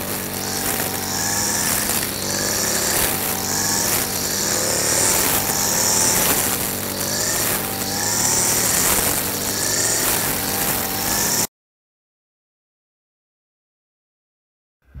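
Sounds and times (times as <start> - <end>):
grass trimmer engine: 0.0 - 11.5.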